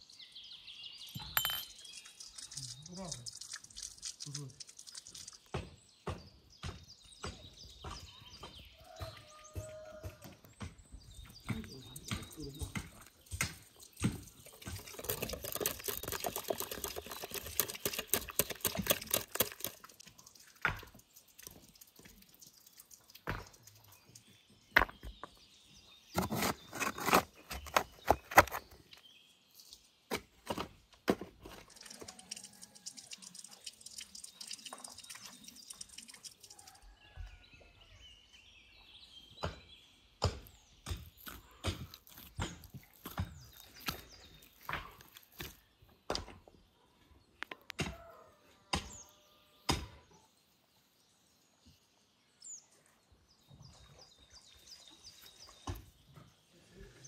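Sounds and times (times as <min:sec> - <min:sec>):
faint bird chirps: 0:00.0 - 0:05.5
stirring in a glass bowl: 0:11.9 - 0:22.7
shovel digging stony soil: 0:26.1 - 0:28.8, 0:40.2 - 0:45.6.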